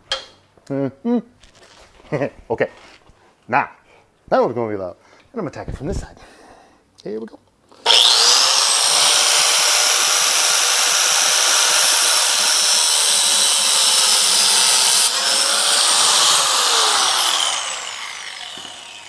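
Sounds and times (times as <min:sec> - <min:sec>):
angle grinder cutting metal: 0:07.8 - 0:19.0
grinder winding down whine: 0:07.8 - 0:19.0.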